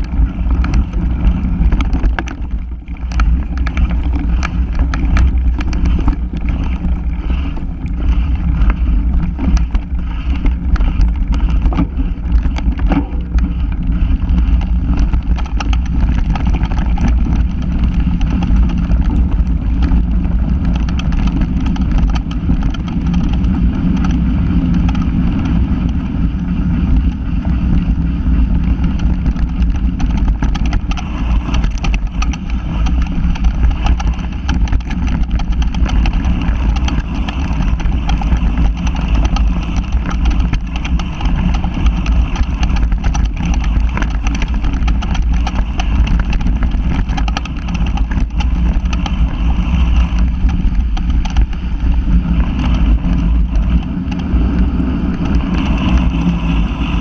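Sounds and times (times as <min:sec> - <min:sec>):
knocks and rattles from bumps: 0:00.0 - 0:26.0
low rumble of vehicle ride: 0:00.0 - 0:57.0
wind buffeting microphone: 0:00.0 - 0:57.0.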